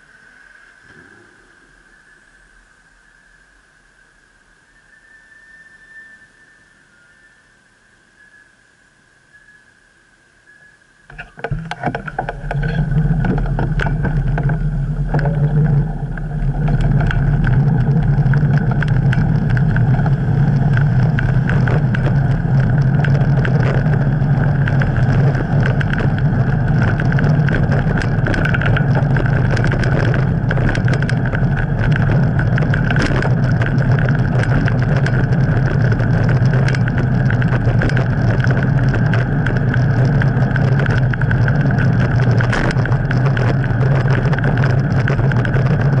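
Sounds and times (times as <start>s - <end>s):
wind rumble on moving bicycle: 0.0s - 9.2s, 9.9s - 46.0s
rattling clicks: 11.1s - 46.0s.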